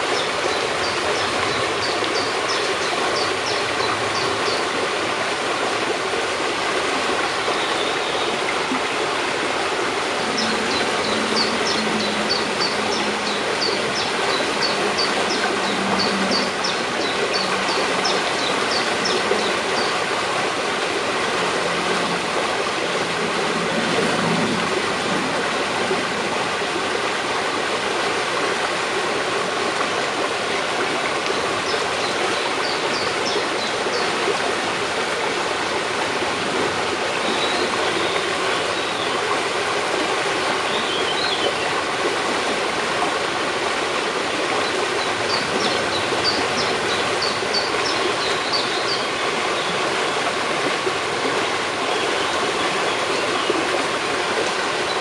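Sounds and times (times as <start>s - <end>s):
brook running: 0.0s - 55.0s.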